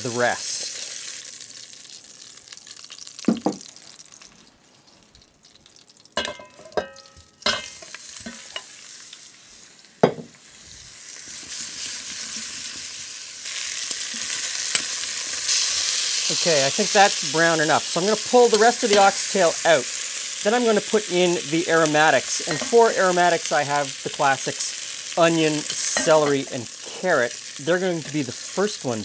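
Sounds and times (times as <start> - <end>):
hot oil sizzling in a pot: 0.0 - 29.0
metal tongs clinking against pot: 6.2 - 8.7, 18.9 - 19.1, 22.4 - 22.8.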